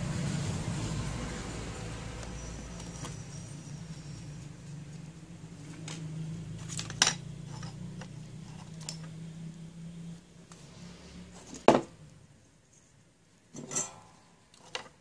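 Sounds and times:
tools clattering: 0:13.5 - 0:15.0.

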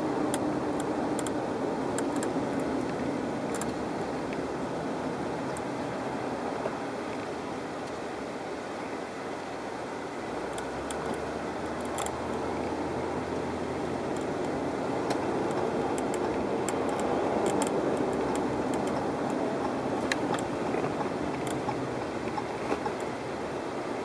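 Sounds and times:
road and wind noise in car: 0:00.0 - 0:24.0
light clicks and ticks: 0:00.3 - 0:04.4, 0:10.5 - 0:12.8, 0:14.0 - 0:23.2.

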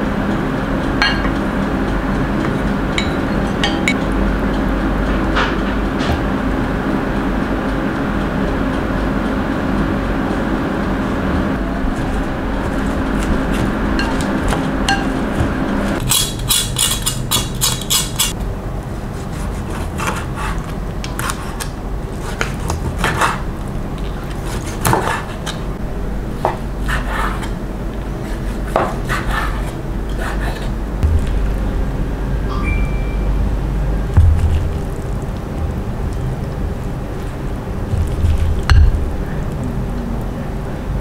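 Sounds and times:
knife sawing through crisp crust: 0:19.1 - 0:23.5, 0:24.2 - 0:25.6.

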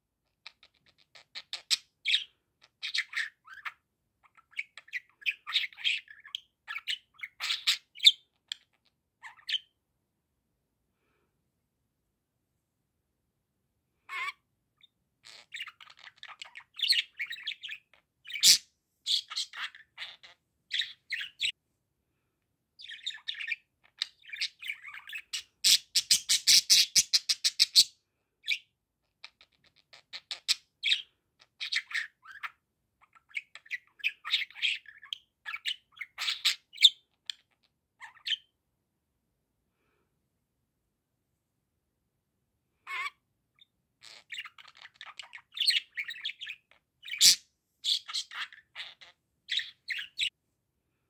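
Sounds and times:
budgerigar warbling and chattering: 0:00.4 - 0:09.7, 0:14.1 - 0:21.5, 0:22.8 - 0:28.6, 0:29.2 - 0:38.5, 0:42.9 - 0:50.3.

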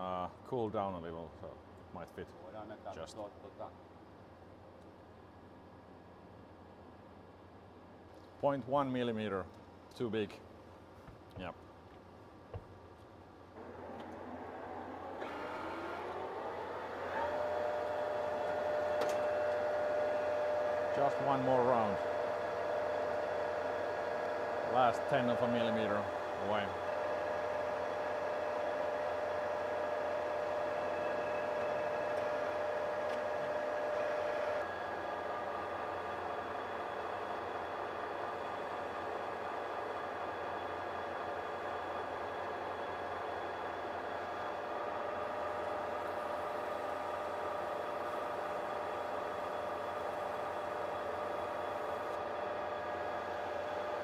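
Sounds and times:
metal lathe spindle whine: 0:13.6 - 0:54.0.

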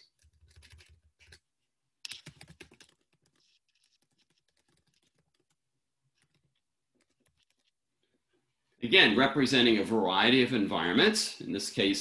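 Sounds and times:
keyboard typing: 0:00.0 - 0:01.4, 0:02.1 - 0:07.8.

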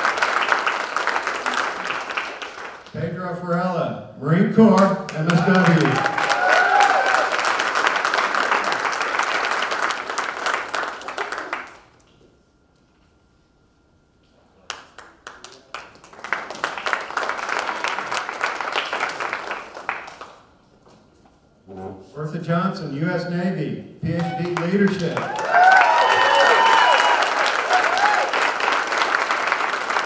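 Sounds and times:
audience applauding: 0:00.0 - 0:02.9, 0:05.1 - 0:11.9, 0:14.7 - 0:20.5, 0:24.2 - 0:30.0.

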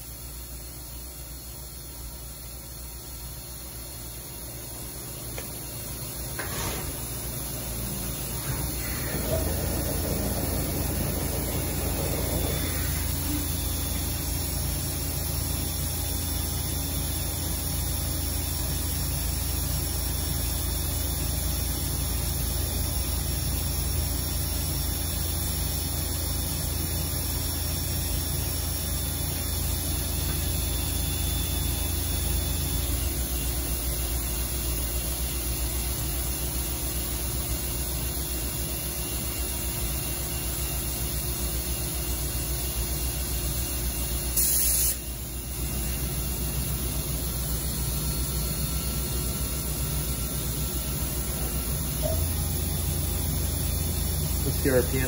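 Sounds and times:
machine low hum: 0:00.0 - 0:19.8
faint high whining tones: 0:07.4 - 0:15.0.

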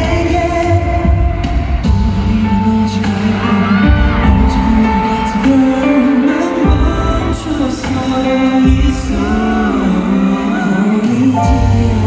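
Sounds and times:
band backing music: 0:00.0 - 0:12.0
male vocal group singing: 0:00.0 - 0:12.0.

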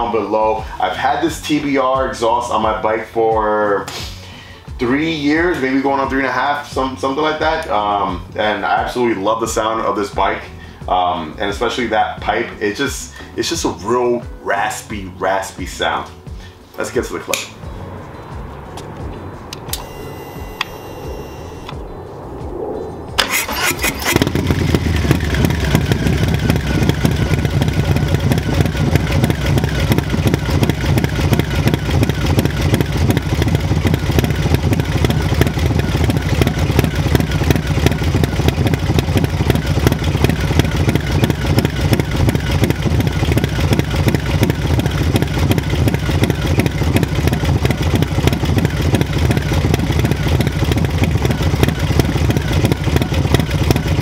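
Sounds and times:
motorcycle engine starting and idling: 0:17.3 - 0:21.8, 0:23.2 - 0:54.0.

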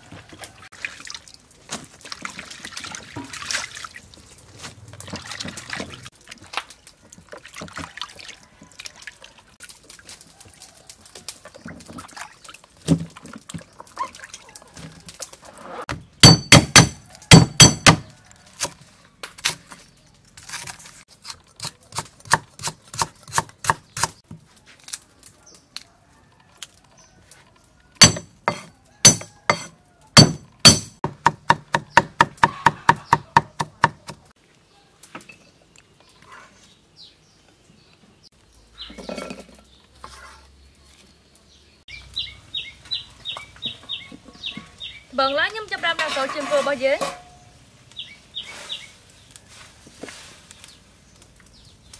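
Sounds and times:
cleaver chopping on wooden block: 0:16.2 - 0:18.8, 0:21.6 - 0:24.2, 0:28.0 - 0:34.2.

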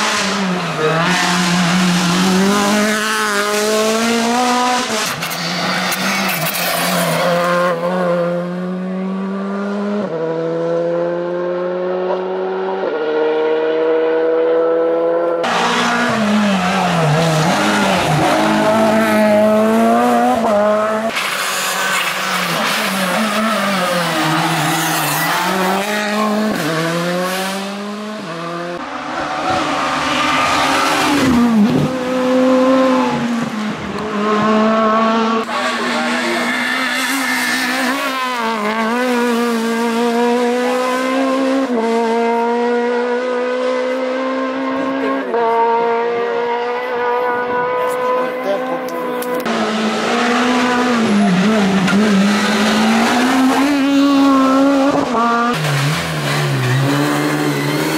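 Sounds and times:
rally cars passing at full throttle: 0:00.0 - 0:57.9.

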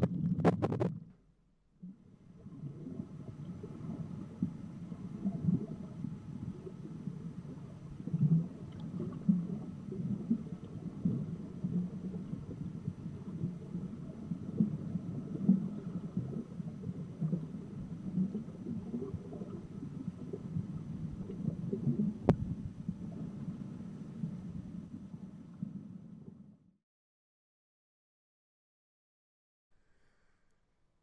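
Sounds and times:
underwater bubbles gurgling: 0:01.8 - 0:26.4.

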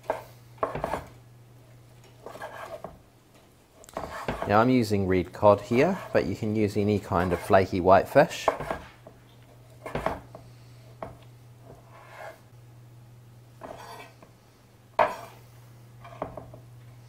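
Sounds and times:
knife chopping on wooden board: 0:00.0 - 0:01.1, 0:03.9 - 0:04.5, 0:08.4 - 0:09.0, 0:09.8 - 0:10.4, 0:15.0 - 0:15.3
steady low hum: 0:00.0 - 0:17.0.

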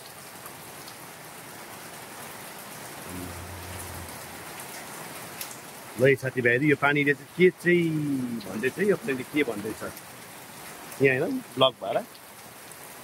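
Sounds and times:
steady downpour of rain: 0:00.0 - 0:13.0
faint low hum: 0:03.0 - 0:05.1.

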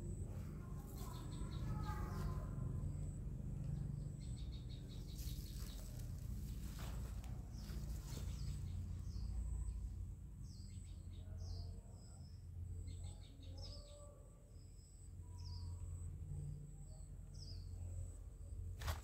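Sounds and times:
steady low rumble: 0:00.0 - 0:11.3
small birds chirping: 0:00.0 - 0:16.1, 0:16.7 - 0:19.0.

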